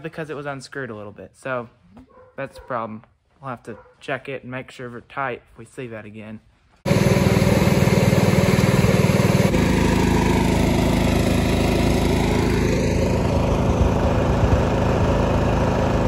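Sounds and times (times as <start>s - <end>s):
diesel engine running: 6.9s - 16.0s.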